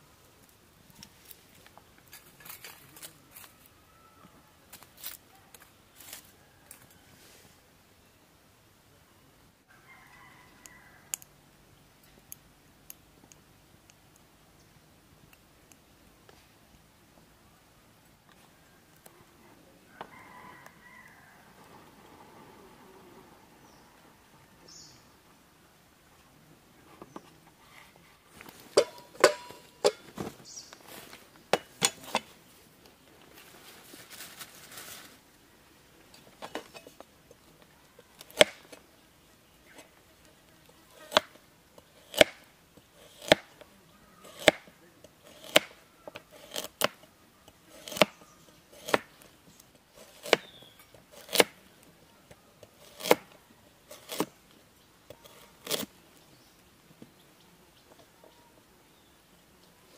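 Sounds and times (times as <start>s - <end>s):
soft rustle: 0.0s - 7.8s, 26.0s - 38.9s.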